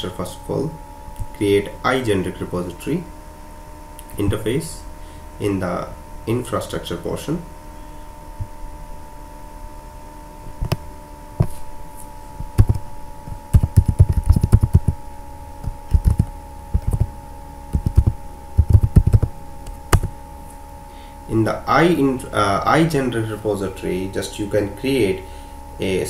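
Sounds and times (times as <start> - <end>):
faint steady hum: 0.0 - 26.0
keyboard typing: 13.5 - 15.0, 15.9 - 17.1, 17.7 - 19.3.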